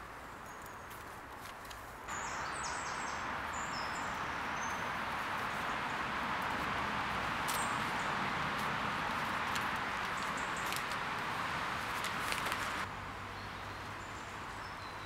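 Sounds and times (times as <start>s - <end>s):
steady outdoor hiss: 0.0s - 15.0s
faint clicks and rustles: 0.5s - 2.1s, 8.6s - 12.9s.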